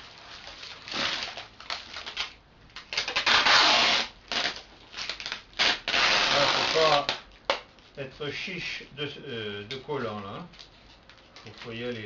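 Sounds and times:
plastic wrapping crinkling: 0:00.0 - 0:08.4, 0:09.5 - 0:12.0
adhesive tape ripping off roll: 0:00.6 - 0:07.7.

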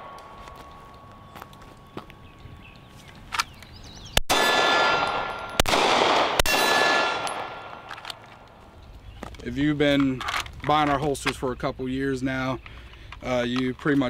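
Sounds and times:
pistol shots with ringing echo: 0:04.2 - 0:08.2.

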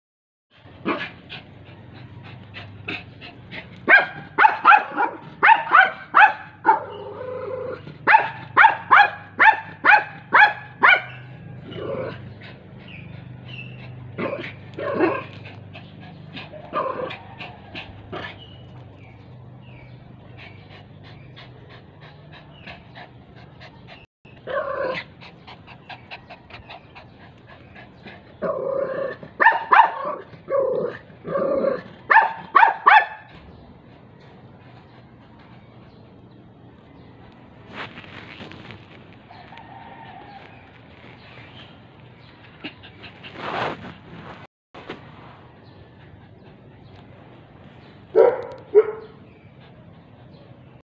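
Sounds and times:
small dog barking: 0:03.8 - 0:12.1, 0:14.2 - 0:15.4, 0:29.4 - 0:31.0, 0:31.6 - 0:33.4, 0:48.1 - 0:49.2.

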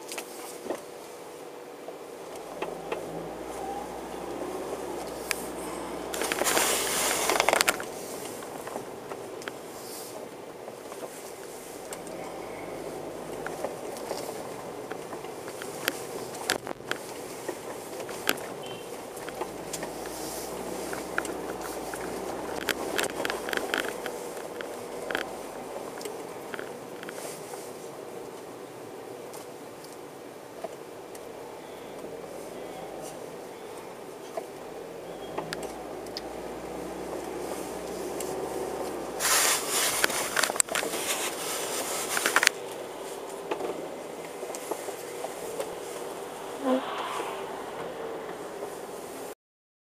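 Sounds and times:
car engine and road noise: 0:00.0 - 0:49.4
low background hum: 0:00.3 - 0:49.3
vehicle passing close by: 0:02.1 - 0:29.1, 0:31.2 - 0:49.3
sharp clicks and rattles: 0:02.2 - 0:28.5, 0:34.2 - 0:46.6.

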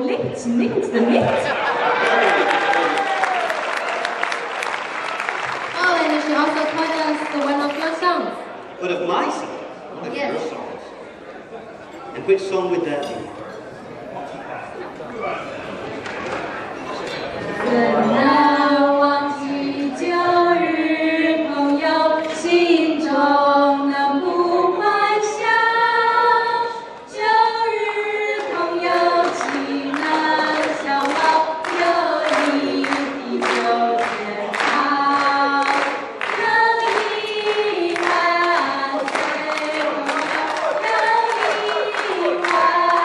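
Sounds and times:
group of voices singing: 0:17.4 - 0:43.0.

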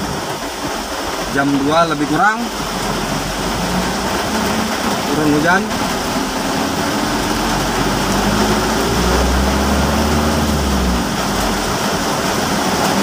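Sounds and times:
rain hiss on wet road: 0:00.0 - 0:13.0
car engine running: 0:00.1 - 0:13.0
deep low hum: 0:02.6 - 0:11.9.

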